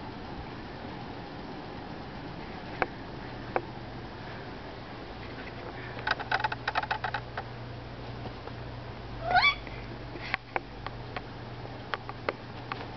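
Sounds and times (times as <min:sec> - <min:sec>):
steady low hum: 0:00.0 - 0:12.9
quick light clicks and taps: 0:11.9 - 0:12.9.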